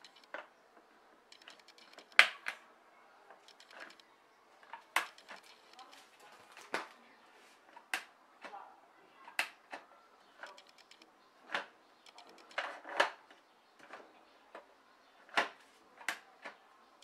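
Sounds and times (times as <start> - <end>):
plastic clicks and knocks: 9.2 - 16.6.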